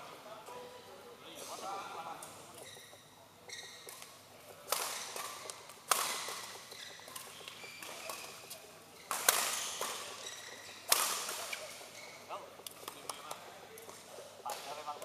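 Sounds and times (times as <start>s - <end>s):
shoes squeaking on court: 2.5s - 14.0s
rackets striking shuttlecock: 3.8s - 10.2s, 10.8s - 11.8s.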